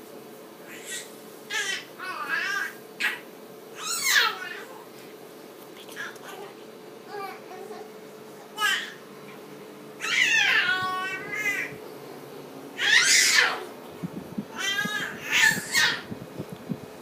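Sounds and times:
baby squealing: 3.8s - 4.7s, 10.0s - 11.7s, 12.8s - 13.7s, 14.6s - 16.1s.

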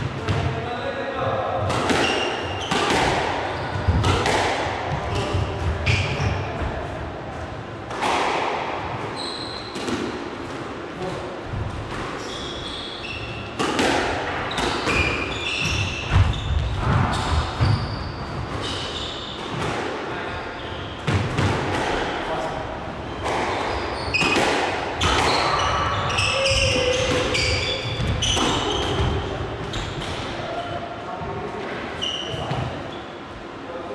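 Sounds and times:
squash ball hitting rackets and walls: 0.0s - 0.6s, 1.4s - 6.8s, 7.8s - 22.3s, 23.1s - 30.6s
shoes squeaking on court floor: 1.7s - 6.7s, 9.1s - 10.0s, 12.1s - 13.6s, 14.4s - 19.7s, 20.3s - 21.2s, 23.0s - 24.4s, 25.0s - 30.2s, 31.9s - 33.2s.

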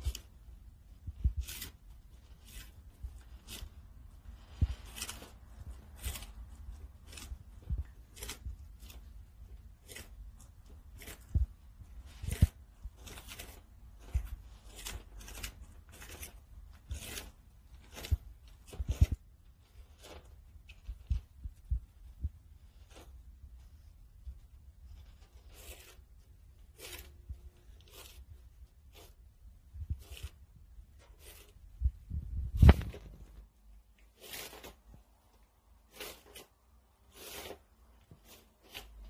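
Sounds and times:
tortoises crunching leaves: 1.2s - 20.8s.

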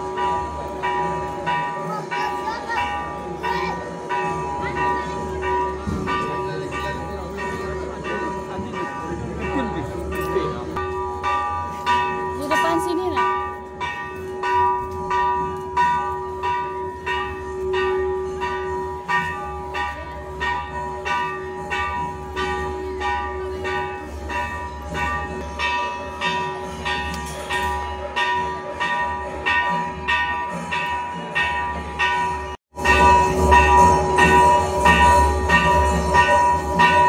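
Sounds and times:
temple bell ringing: 0.0s - 37.0s.

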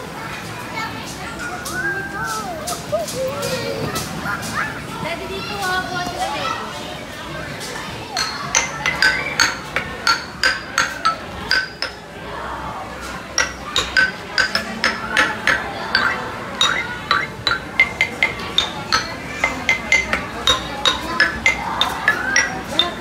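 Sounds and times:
hard objects clinking together: 8.2s - 12.1s, 13.3s - 23.0s.

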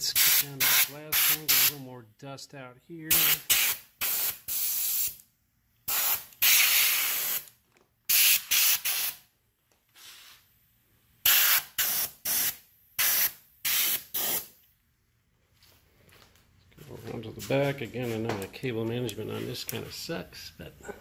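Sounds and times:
air blow gun hissing blasts: 5.9s - 7.4s.

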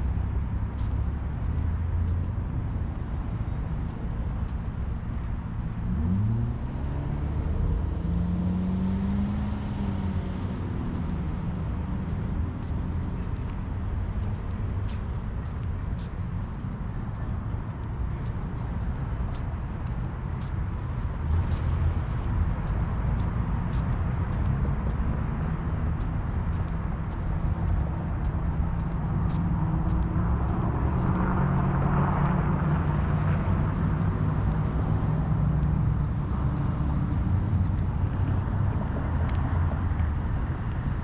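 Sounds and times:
traffic rumble: 0.0s - 41.0s
vehicle passing: 4.5s - 41.0s
footsteps on concrete: 10.3s - 41.0s.

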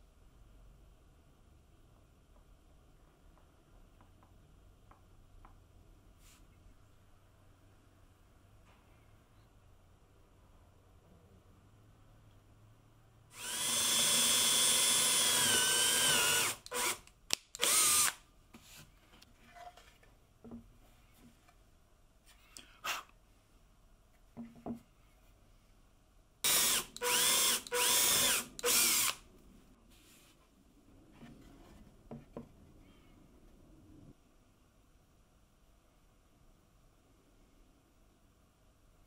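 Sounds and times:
electric drill boring into wood: 13.4s - 17.0s, 17.6s - 18.2s, 26.5s - 29.2s.

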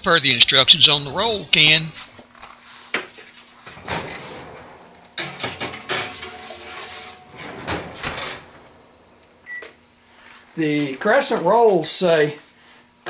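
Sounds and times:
oven door opening: 3.5s - 12.0s
metal pan clattering on rack: 3.6s - 10.4s
sharp metal knocks: 3.7s - 10.4s.

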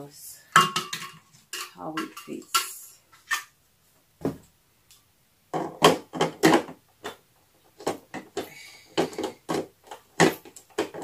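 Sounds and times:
blender parts knocking and clicking: 5.5s - 7.2s, 7.8s - 11.0s.

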